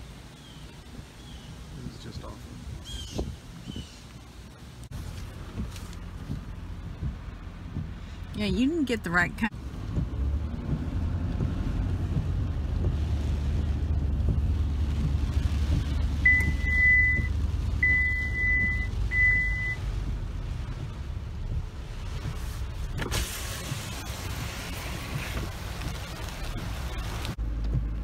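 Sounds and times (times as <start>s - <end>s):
rain on a window: 0.0s - 28.0s
truck engine rumble: 0.0s - 28.0s.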